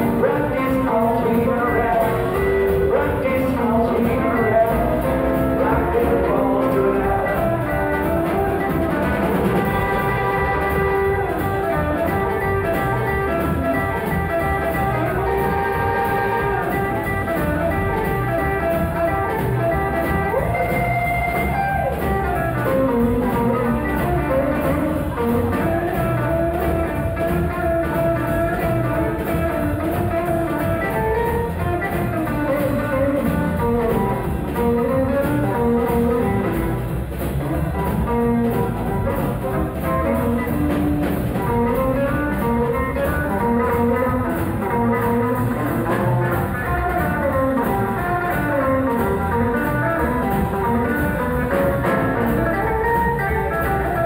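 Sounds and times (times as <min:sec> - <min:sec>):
drum kit: 0:00.0 - 0:54.0
electric guitar: 0:00.0 - 0:54.0
upright double bass: 0:00.0 - 0:54.0.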